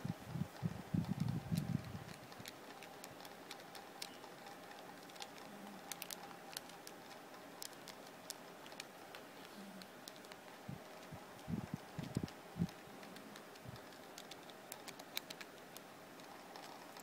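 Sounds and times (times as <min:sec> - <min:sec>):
calculator keys clicking: 0:10.0 - 0:17.0.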